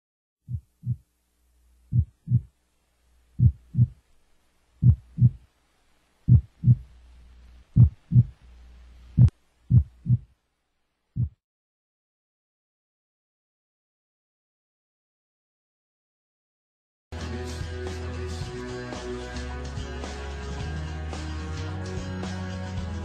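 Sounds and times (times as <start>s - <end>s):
heartbeat thumps: 0.5s - 1.0s, 1.9s - 2.5s, 3.4s - 4.0s, 4.8s - 5.4s, 6.3s - 6.9s, 7.7s - 8.4s, 9.1s - 10.3s, 11.2s - 11.4s
faint low hum: 0.5s - 11.3s.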